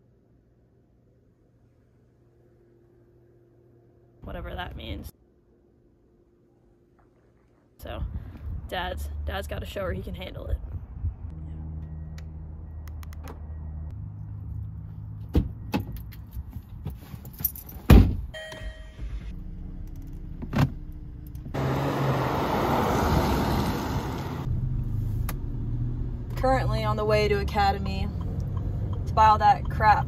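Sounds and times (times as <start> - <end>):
car driving road noise: 8.4 - 17.6, 19.3 - 30.0
loud thunk: 17.9 - 18.2.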